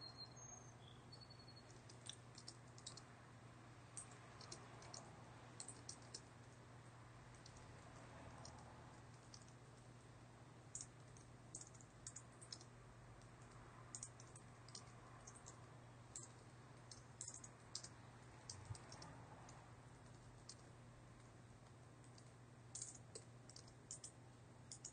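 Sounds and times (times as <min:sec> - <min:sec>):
low steady hum: 0:00.0 - 0:24.9
typing on computer keyboard: 0:01.6 - 0:03.1, 0:04.0 - 0:06.6, 0:07.3 - 0:09.9, 0:10.7 - 0:20.7, 0:22.0 - 0:24.9.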